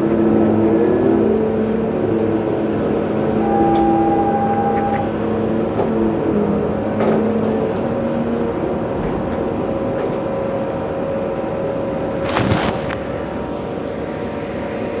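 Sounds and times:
excavator engine whining: 0:00.0 - 0:15.0.

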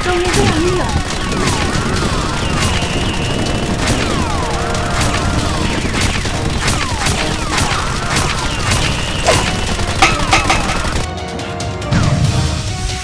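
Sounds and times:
steady low rumble: 0:00.0 - 0:11.0
toy blaster shots: 0:00.0 - 0:11.1.

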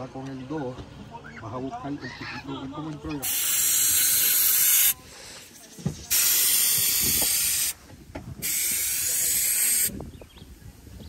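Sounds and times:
air hissing out of tire valve: 0:03.2 - 0:10.3.

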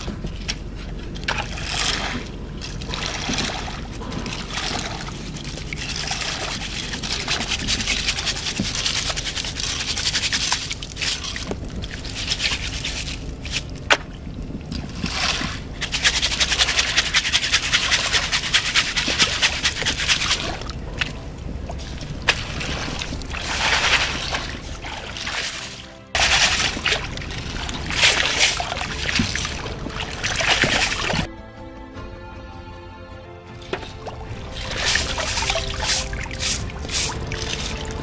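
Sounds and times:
music: 0:00.0 - 0:13.2, 0:15.2 - 0:38.0
water splashing and sloshing: 0:00.0 - 0:31.3, 0:33.5 - 0:38.0.

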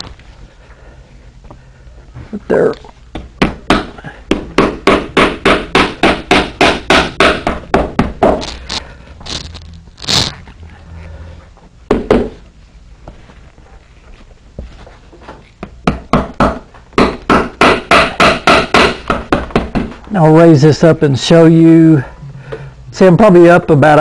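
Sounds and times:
hammer tapping leather: 0:03.1 - 0:08.5.

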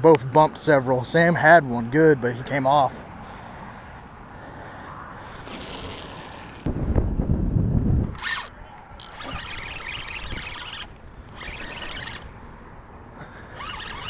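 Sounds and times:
wind buffeting microphone: 0:06.4 - 0:14.0
fishing reel whirring: 0:08.2 - 0:12.4, 0:13.2 - 0:14.0.

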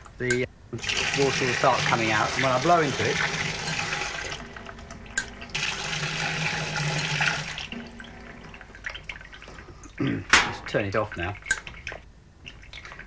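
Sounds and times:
steady hum: 0:00.0 - 0:12.6
water gushing through fill valve: 0:00.8 - 0:10.0.

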